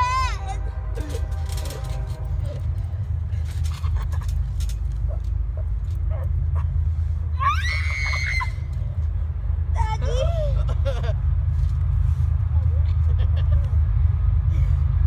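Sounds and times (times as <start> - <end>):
high-pitched voice crying out: 7.4 - 8.6, 9.8 - 10.6.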